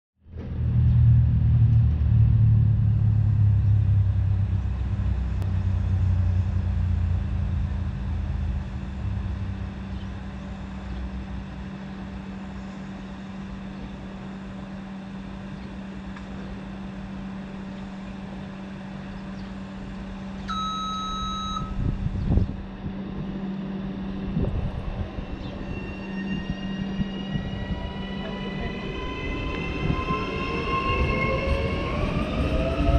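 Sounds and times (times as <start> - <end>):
low rumble: 0.2 - 32.9
train electrical hum: 0.3 - 32.9
train motors whining: 0.3 - 32.9
electronic beep: 20.5 - 21.8.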